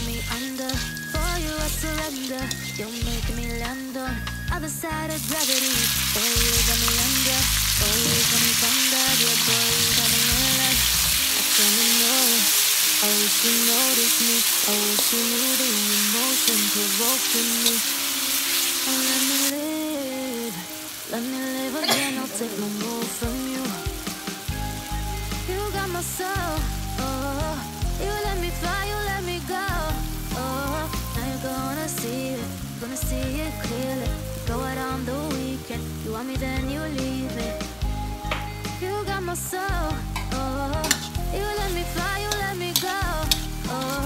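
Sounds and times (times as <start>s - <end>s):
meat sizzling in hot oil: 0.0s - 4.4s, 5.2s - 37.0s, 40.2s - 44.0s
metal spatula stirring in wok: 42.3s - 44.0s.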